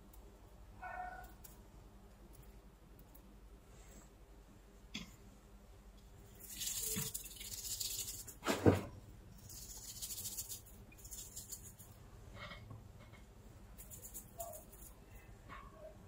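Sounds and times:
brush scrubbing metal parts: 6.4s - 8.4s, 9.4s - 12.6s, 13.8s - 15.0s.

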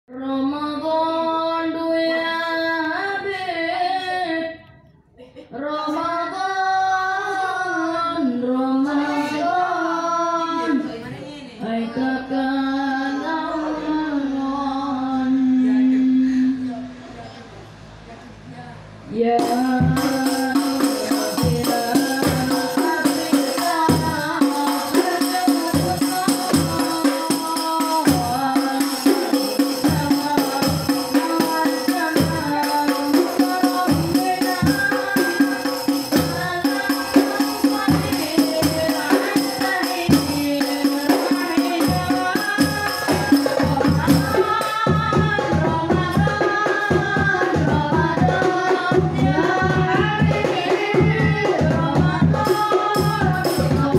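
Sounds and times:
boys singing devotional song: 0.1s - 4.7s, 5.3s - 17.1s, 18.0s - 53.9s
hand drums and bass drum beat: 19.4s - 53.9s.

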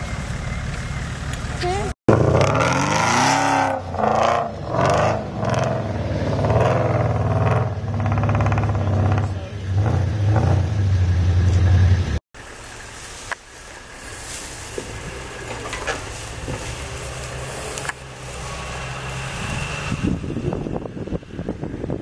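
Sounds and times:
pickup engine revving: 0.0s - 12.5s.

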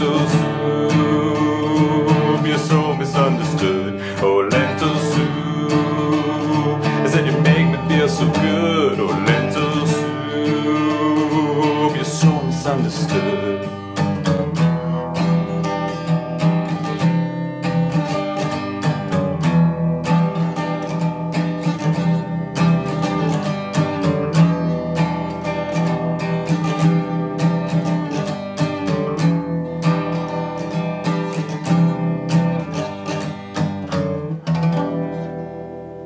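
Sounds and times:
acoustic guitar strumming: 0.0s - 36.0s.

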